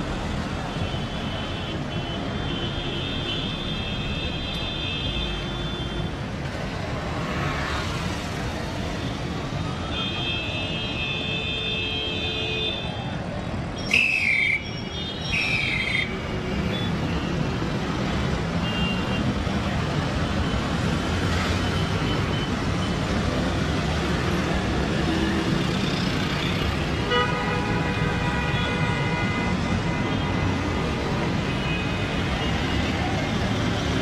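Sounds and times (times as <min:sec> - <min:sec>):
vehicle horns honking: 0:27.0 - 0:30.4.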